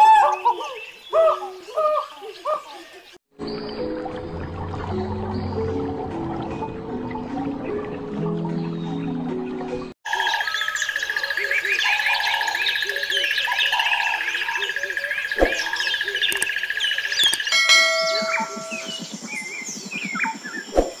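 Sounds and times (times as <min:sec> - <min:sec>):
birds chirping and singing: 0:00.0 - 0:04.3, 0:07.2 - 0:21.0
steady high bird trill: 0:10.1 - 0:21.0
sharp click: 0:15.4 - 0:16.5.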